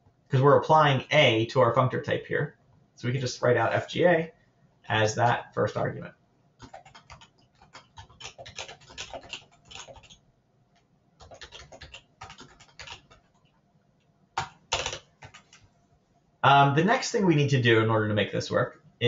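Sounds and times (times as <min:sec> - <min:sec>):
computer keyboard typing: 0:06.6 - 0:10.2, 0:11.2 - 0:13.6, 0:14.4 - 0:15.7.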